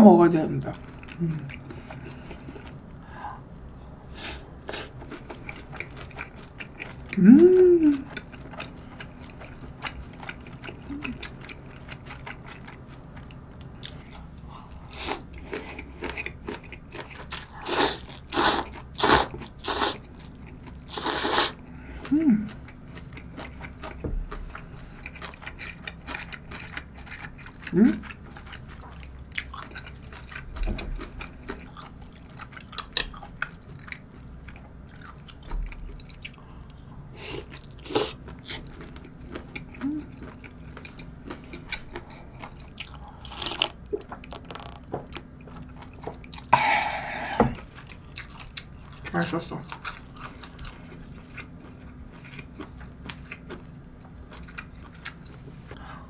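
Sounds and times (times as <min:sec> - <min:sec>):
person chewing: 0:00.7 - 0:56.0
closed-mouth hum: 0:07.1 - 0:08.2, 0:20.8 - 0:25.1, 0:46.0 - 0:47.8
slurping noodles: 0:20.9 - 0:21.6.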